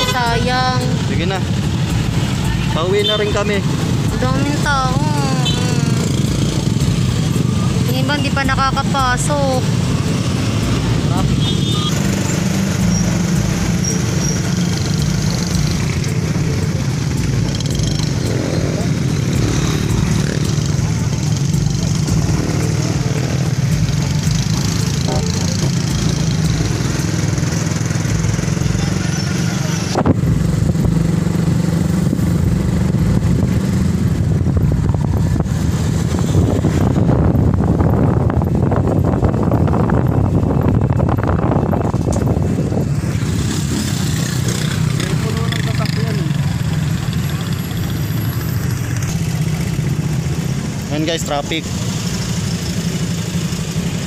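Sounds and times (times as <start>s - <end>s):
road noise: 0.0s - 54.0s
vehicle engines rumbling: 0.0s - 54.0s
wind noise on microphone: 29.9s - 45.0s.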